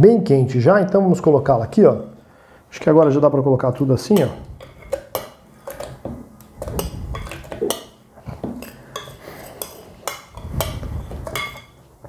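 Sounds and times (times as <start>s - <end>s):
spoon scraping a glass bowl: 8.6s - 11.8s.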